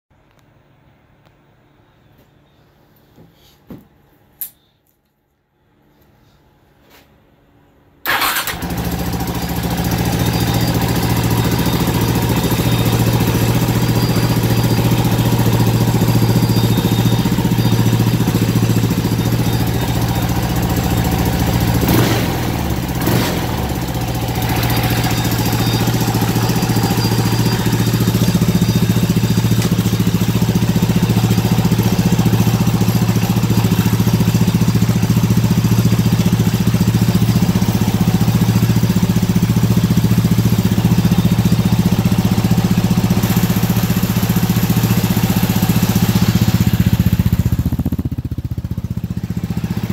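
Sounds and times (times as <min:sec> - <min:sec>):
motorcycle engine idling: 0:08.1 - 0:49.9
throttle blips: 0:09.8 - 0:39.1.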